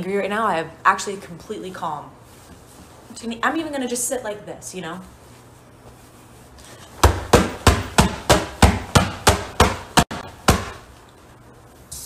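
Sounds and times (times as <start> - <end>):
fists punching a pillow: 6.9 - 10.9.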